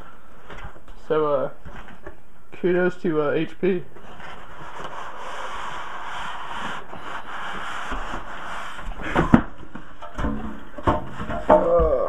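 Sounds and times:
hand rubbing cardboard box: 4.0s - 9.4s
knocks and bumps of box contents: 8.9s - 12.0s.

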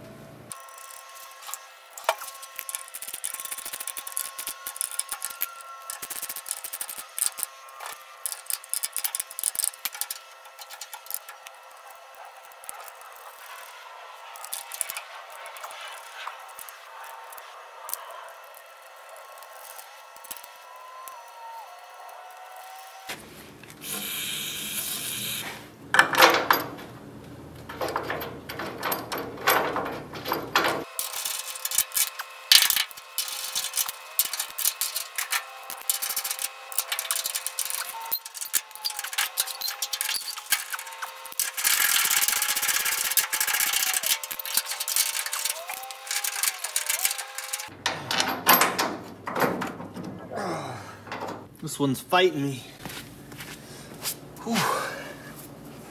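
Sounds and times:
wrench and bolts clinking on metal: 0.8s - 11.5s, 25.9s - 26.9s, 27.6s - 50.2s.

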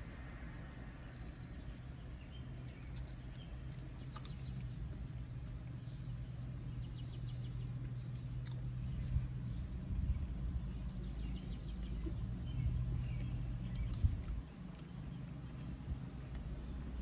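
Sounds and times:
small birds chirping: 0.0s - 17.0s
steady low hum: 0.0s - 17.0s
person chewing food: 1.2s - 5.7s, 13.0s - 17.0s.

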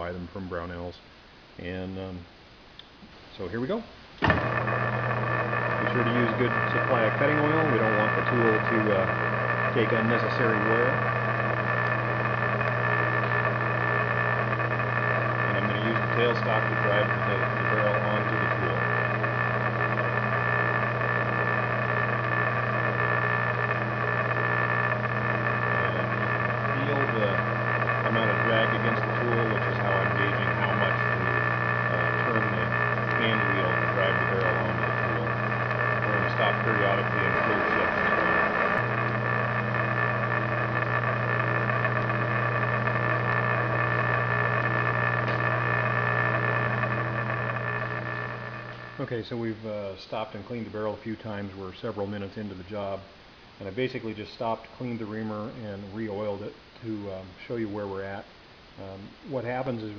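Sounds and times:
metal lathe motor hum: 4.2s - 49.6s
lathe high whine: 4.2s - 59.9s.

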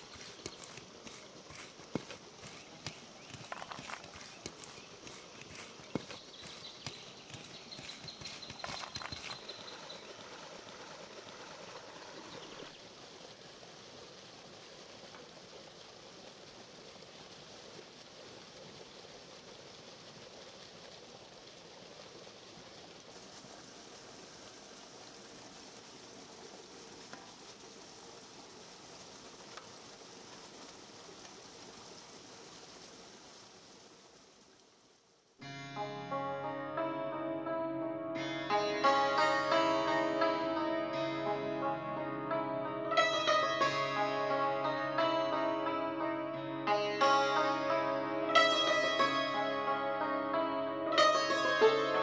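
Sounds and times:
wet rustling against a metal colander: 0.0s - 10.3s
rushing like running water: 0.0s - 36.8s, 38.2s - 52.0s.

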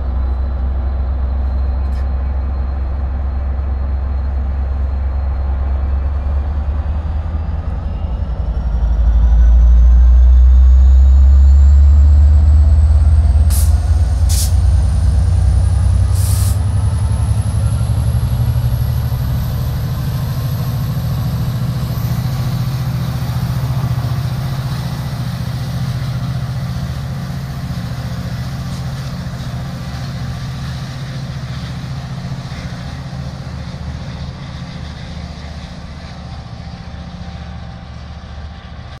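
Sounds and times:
diesel locomotive engine drone: 0.0s - 39.0s
rising whine: 3.6s - 39.0s
short high hisses: 13.5s - 14.6s, 16.2s - 16.6s.

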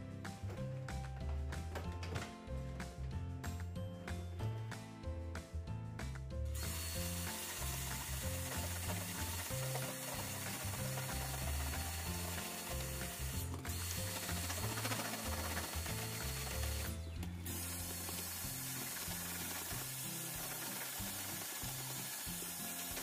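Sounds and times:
background music: 0.0s - 23.0s
vacuum cleaner running: 6.6s - 23.0s.

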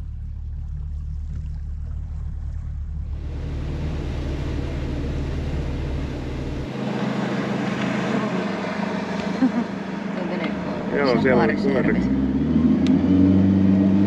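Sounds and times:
rushing water: 0.0s - 11.0s
motorboat engine running: 0.0s - 14.0s
wind: 0.0s - 14.0s.

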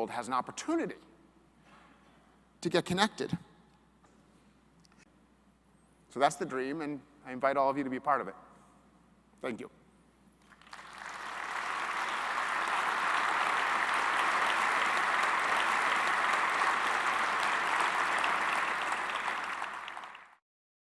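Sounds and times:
audience applauding: 10.4s - 20.4s.

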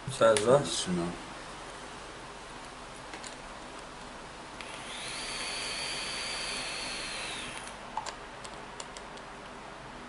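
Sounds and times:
vape airflow hiss and whistle: 4.7s - 7.6s.

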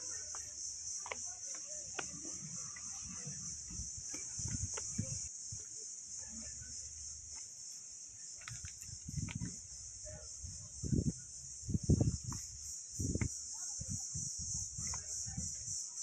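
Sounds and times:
footsteps on dirt path: 0.0s - 5.3s
insect chorus: 0.0s - 16.0s.

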